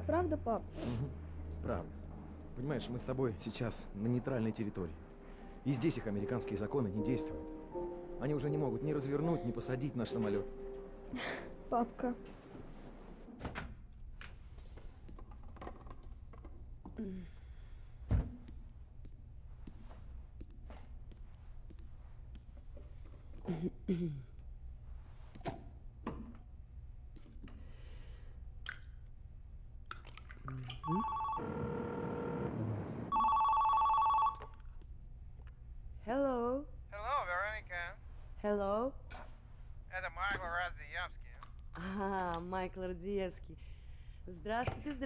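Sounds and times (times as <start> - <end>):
phone ringing two-tone warble: 30.8 - 32.5, 33.1 - 34.4.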